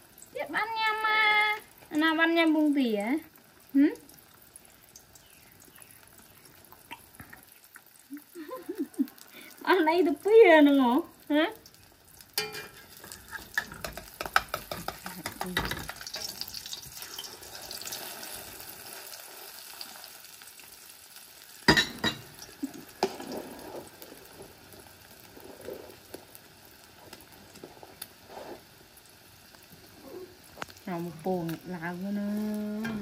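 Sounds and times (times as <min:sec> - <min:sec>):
omelet sizzling in a wok: 0:00.0 - 0:33.0
spatula clanking on a plate: 0:12.4 - 0:16.3, 0:21.7 - 0:22.3
metal spatula scraping a pan: 0:12.4 - 0:19.6, 0:23.0 - 0:24.6.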